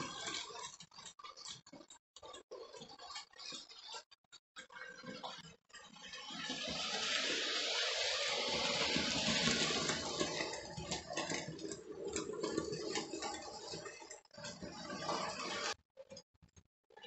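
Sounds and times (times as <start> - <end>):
model train rumbling: 7.0 - 11.7.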